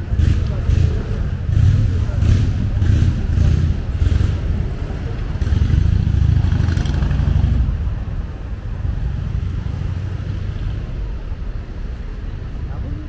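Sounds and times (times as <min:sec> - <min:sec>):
road traffic passing: 0:00.0 - 0:13.0
vehicle engine: 0:00.0 - 0:13.0.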